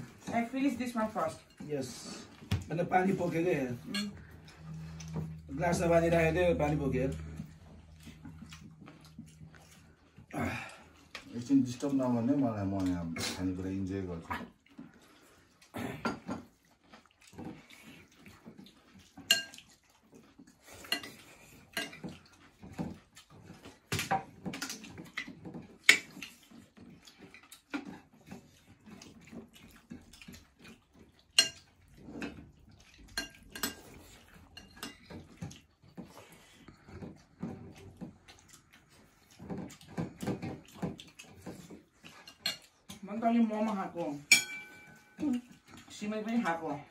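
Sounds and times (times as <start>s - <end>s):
metal plates and spoon clinking: 3.2s - 4.3s, 19.3s - 19.6s, 33.1s - 33.9s, 44.2s - 45.4s.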